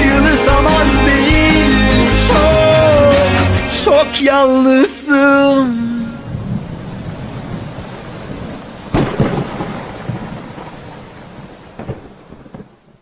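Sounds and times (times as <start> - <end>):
steady rain: 6.0 - 13.0
thunderclap: 6.3 - 13.0.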